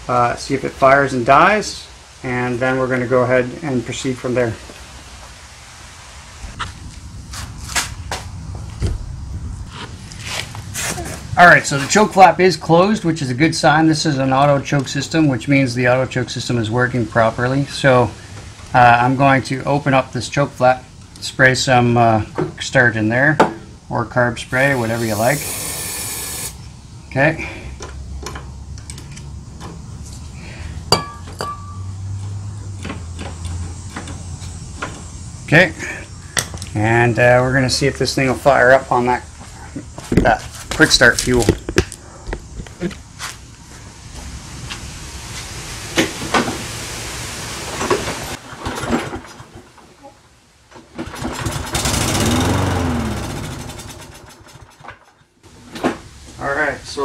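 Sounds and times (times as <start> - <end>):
steady low hum: 0.0 - 45.4
lawn mower engine running: 24.5 - 26.6, 50.9 - 55.1
metal on metal clinks: 30.9 - 31.9
pull-start knocking: 51.0 - 55.1.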